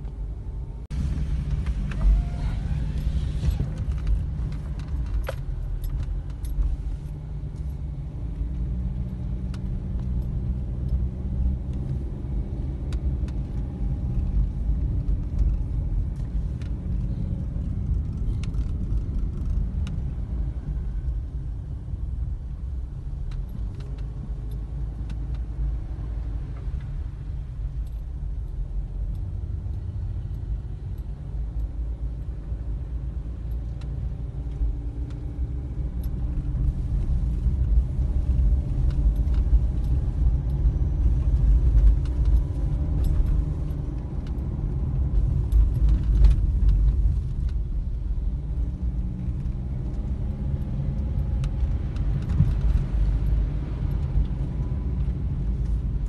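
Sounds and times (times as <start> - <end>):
road rumble inside car: 0.0 - 56.0
light clicks and rattles: 12.6 - 20.2, 23.2 - 56.0.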